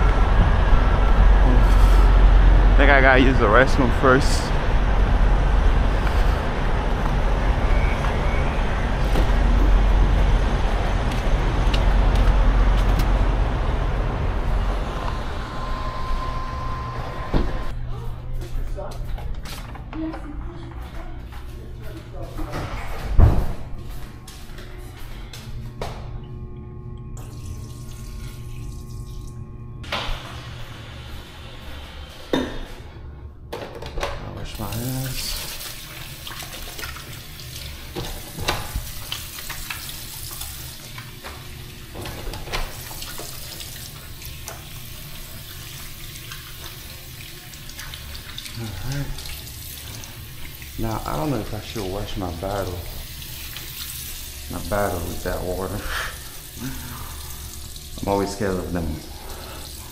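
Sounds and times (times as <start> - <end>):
urinal flushing: 27.0 - 33.0, 34.4 - 59.9.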